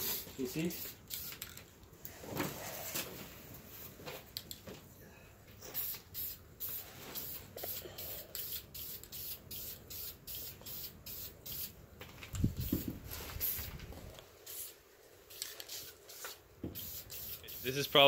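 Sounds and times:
spray paint can hissing: 0.0 - 1.6, 5.7 - 11.8, 12.4 - 13.8, 14.4 - 18.0.

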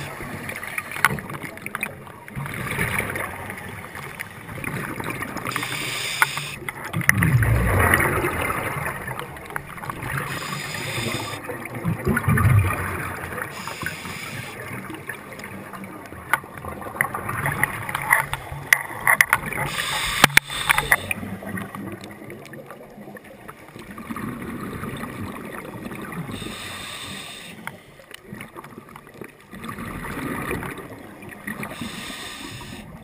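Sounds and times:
muffled hiss: 5.5 - 6.7, 10.2 - 11.5, 13.4 - 14.6, 19.6 - 21.3, 26.3 - 28.0, 31.6 - 33.0
small clicks: 5.5 - 6.8, 17.6 - 21.1
underwater bubbling rumbles: 6.7 - 13.7, 14.6 - 19.8, 20.6 - 26.4, 28.2 - 31.8.

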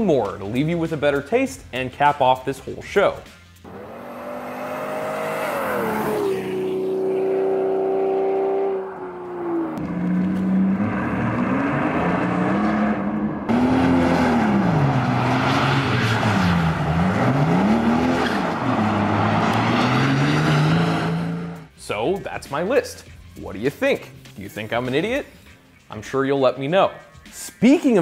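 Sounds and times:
car driving by: 3.6 - 21.7
car engine revving: 3.6 - 21.7.

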